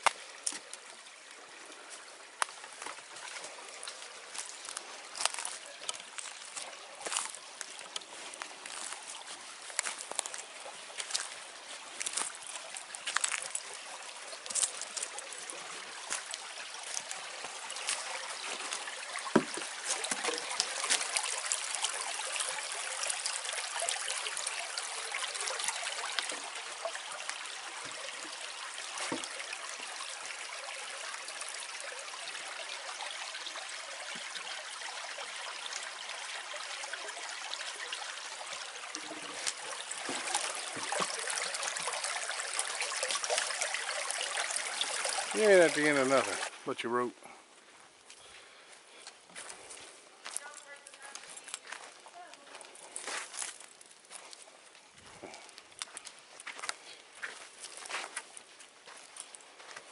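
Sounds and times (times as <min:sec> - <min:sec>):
creek trickling: 0:00.0 - 0:59.9
footsteps on dry leaves: 0:04.3 - 0:12.4.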